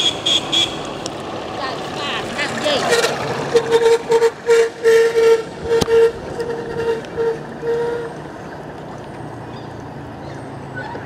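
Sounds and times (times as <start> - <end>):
vehicle horn short beeps: 0.0 - 0.8, 2.8 - 8.2
low engine hum: 0.0 - 11.0.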